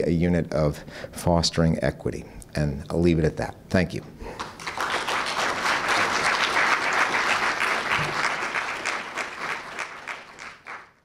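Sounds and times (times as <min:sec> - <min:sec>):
audience applause: 0:04.4 - 0:11.0.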